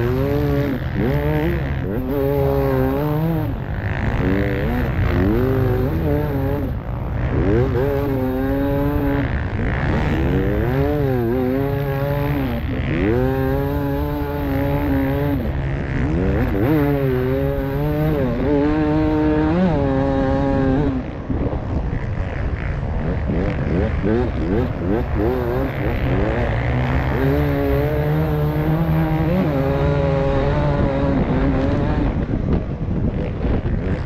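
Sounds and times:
motorcycle engine revving: 0.0s - 34.0s
wind rumble: 0.0s - 34.0s.

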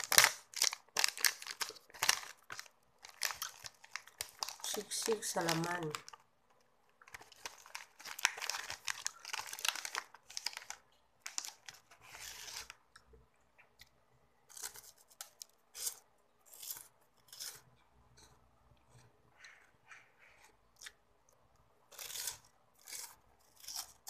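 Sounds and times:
foil wrapper crinkling and tearing: 0.0s - 6.2s, 7.0s - 12.8s
crunching bites and chewing: 13.8s - 19.6s, 21.9s - 24.0s.

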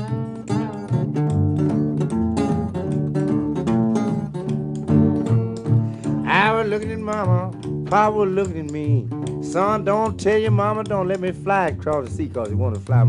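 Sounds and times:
acoustic guitar picking: 0.0s - 13.0s
bass line: 0.1s - 13.0s.

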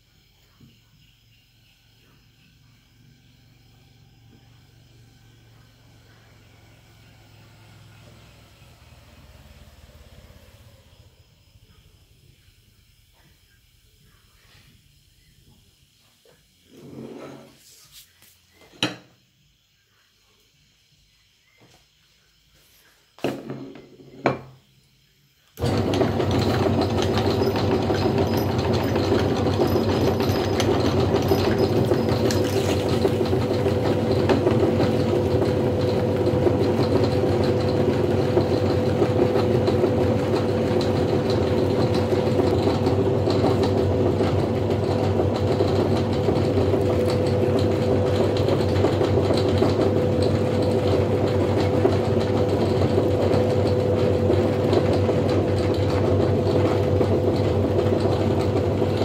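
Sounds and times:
plate knocking on wooden table: 23.2s - 24.5s
meat grinder motor humming: 25.6s - 59.0s.

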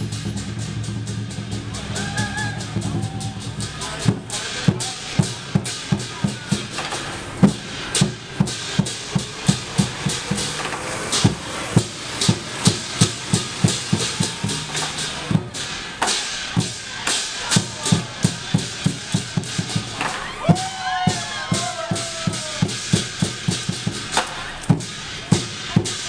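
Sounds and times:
cymbals crashing: 0.0s - 26.0s
drum beating: 0.0s - 26.0s.

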